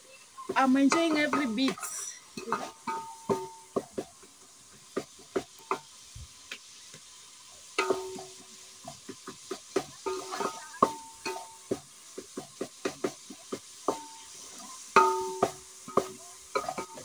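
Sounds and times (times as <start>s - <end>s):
metal spoon stirring in metal pot: 0.8s - 3.9s, 7.8s - 13.2s, 13.8s - 17.0s
pot ringing: 0.9s - 3.8s, 7.8s - 8.4s, 10.0s - 11.7s, 14.9s - 17.0s.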